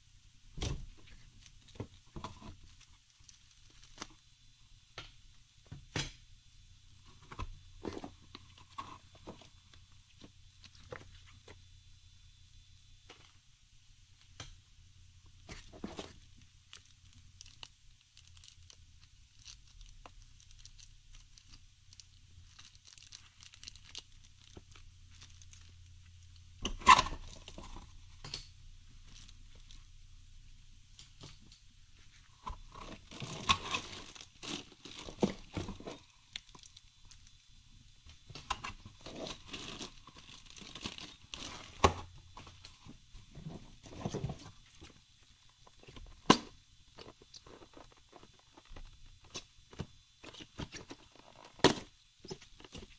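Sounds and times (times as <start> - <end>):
plastic bags crinkling: 1.0 - 4.2, 15.5 - 26.3, 32.8 - 37.3, 38.9 - 42.7.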